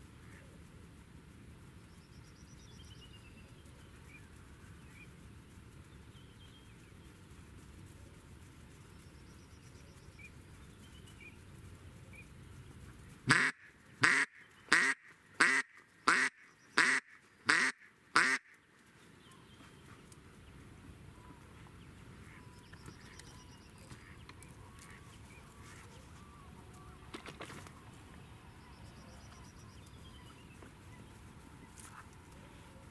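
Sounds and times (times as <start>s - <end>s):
faint small birds chirping: 0.0s - 32.9s
duck quacking: 13.3s - 18.6s.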